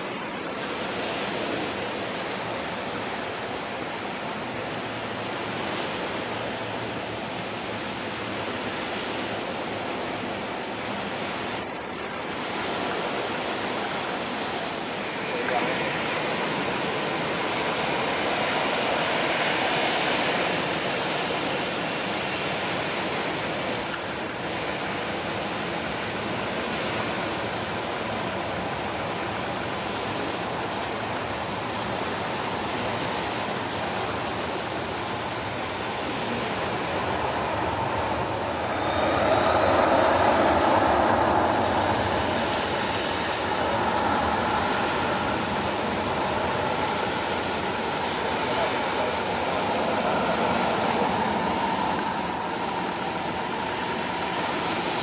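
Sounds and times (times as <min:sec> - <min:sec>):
jet engines idling: 0:28.0 - 0:55.0
faint rising whine: 0:35.2 - 0:54.4.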